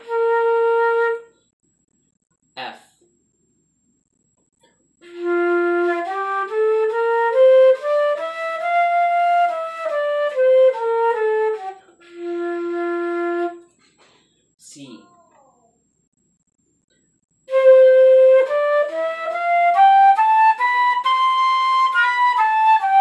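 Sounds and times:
flute playing a scale: 0.0 - 1.3, 5.0 - 13.6, 17.5 - 23.0.

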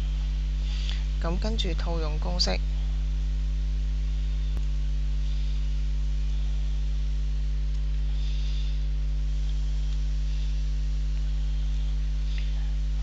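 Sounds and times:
electrical mains hum: 0.0 - 13.0
click: 7.7 - 8.0.

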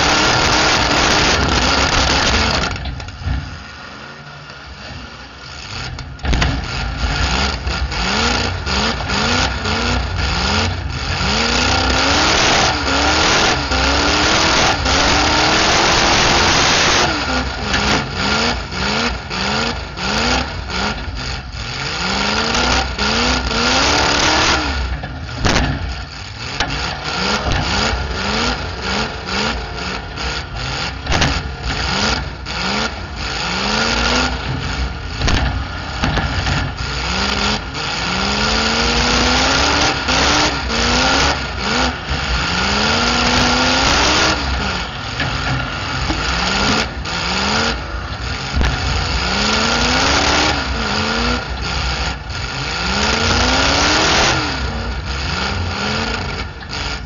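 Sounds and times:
car engine revving hard: 0.0 - 3.6, 4.9 - 57.0
metal car bodies colliding: 34.5 - 36.9.

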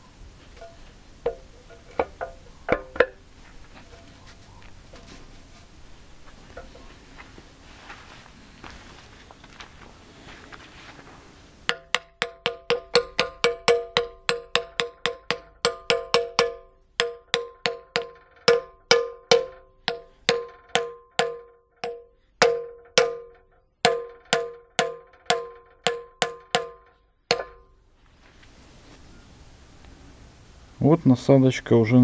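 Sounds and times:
hammer blows ringing on steel: 11.7 - 27.8.

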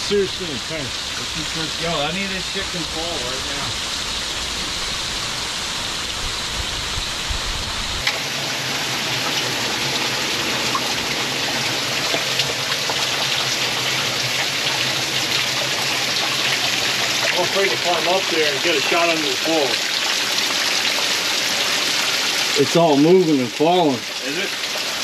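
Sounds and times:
low rumble: 0.0 - 8.1
meltwater dripping and trickling: 0.0 - 25.0.

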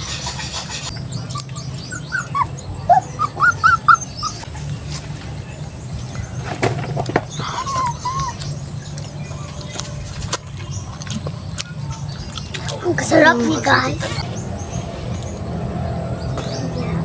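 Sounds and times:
animal squeaky calls: 1.1 - 4.4, 7.3 - 8.6.

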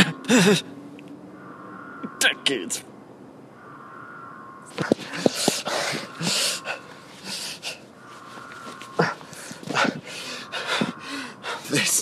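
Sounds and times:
man breathing hard: 5.0 - 8.0, 9.0 - 11.7.

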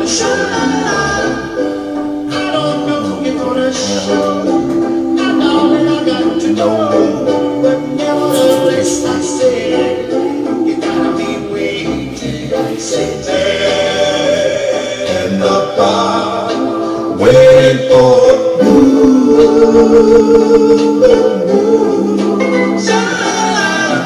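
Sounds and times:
music with singing voices: 0.0 - 24.0.

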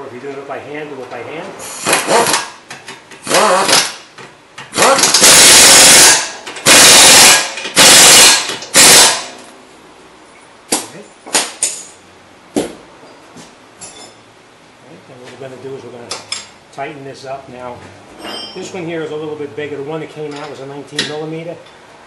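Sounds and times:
pneumatic impact wrench hammering: 1.6 - 9.5.

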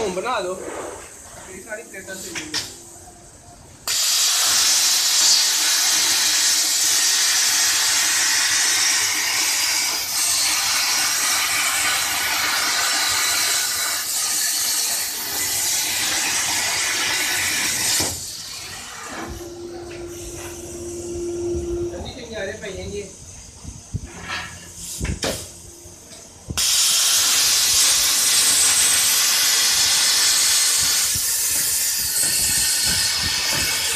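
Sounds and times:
plasma torch arc hissing: 0.0 - 2.8, 3.8 - 33.9
steady tone: 19.1 - 22.6.

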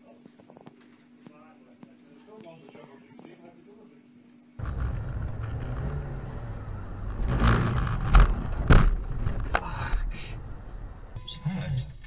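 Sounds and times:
car road and engine rumble: 4.6 - 12.0
sharp knocks: 7.2 - 9.6.

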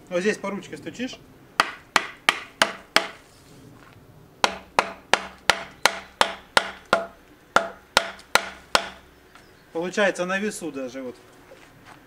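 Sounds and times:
hammer knocking wooden handle: 1.6 - 3.2, 4.4 - 9.0.

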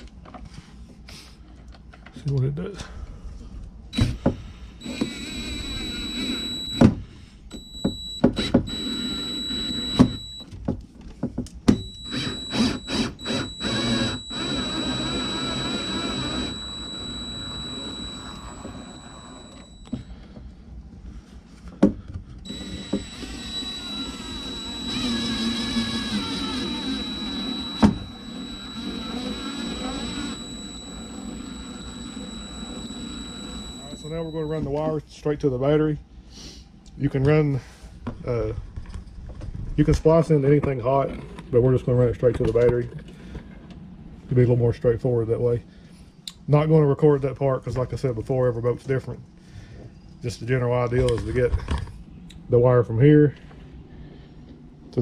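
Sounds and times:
drill motor whining: 4.0 - 10.4, 11.7 - 20.2, 22.5 - 34.8.

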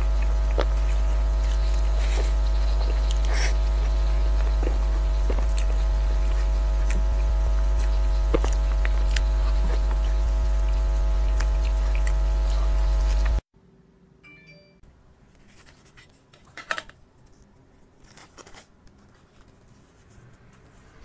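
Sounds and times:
loud electrical hum: 0.0 - 14.2.

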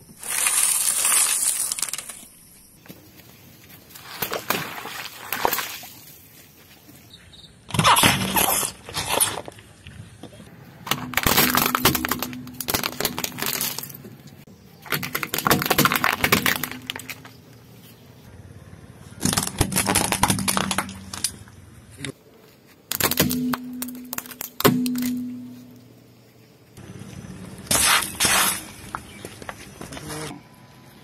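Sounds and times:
tyre crushing plastic objects: 0.1 - 2.3, 10.9 - 17.4, 19.2 - 21.4, 22.9 - 25.2.

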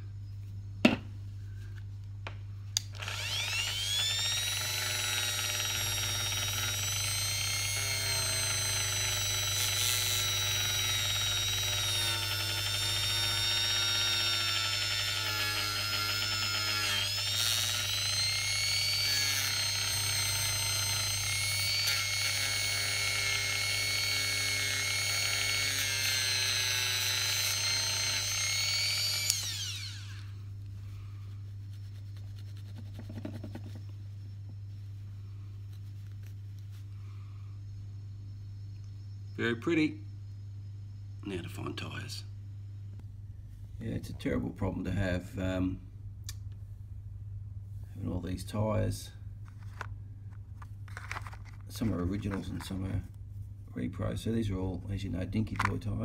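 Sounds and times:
small electric motor whine: 2.8 - 30.5, 50.9 - 52.7.

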